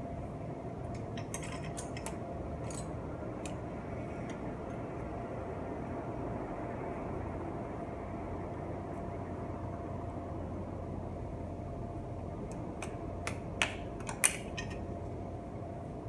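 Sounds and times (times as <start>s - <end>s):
background hum: 0.0s - 16.0s
metal clicks and clinks: 1.0s - 3.6s.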